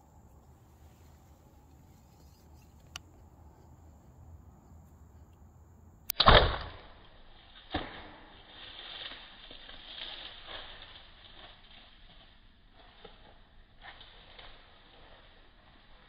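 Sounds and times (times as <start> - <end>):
insects humming: 0.0 - 6.1
bowstring and arrow thwack: 7.7 - 8.3.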